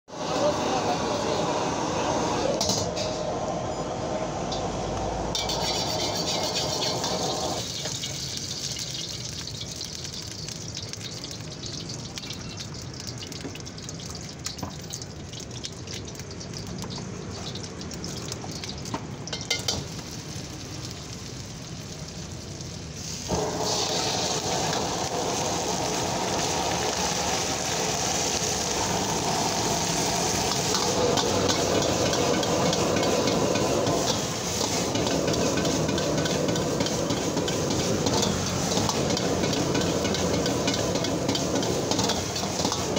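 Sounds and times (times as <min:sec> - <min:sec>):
wok burner rushing: 0:00.1 - 0:12.7, 0:16.8 - 0:42.9
food sizzling in hot oil: 0:04.5 - 0:42.9
ladle clinking on wok: 0:05.3 - 0:08.3.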